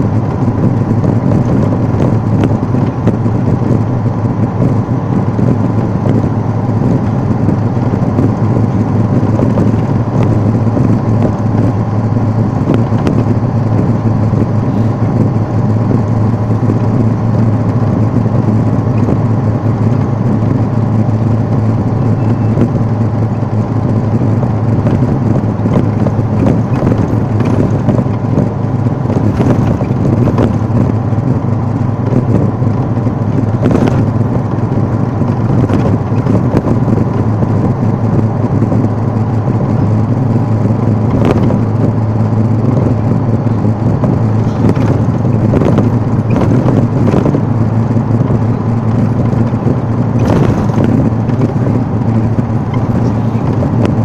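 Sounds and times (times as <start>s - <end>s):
tyre rumble: 0.0s - 54.0s
vehicle engine and road hum: 0.0s - 54.0s
knocks and rattles: 23.9s - 37.2s.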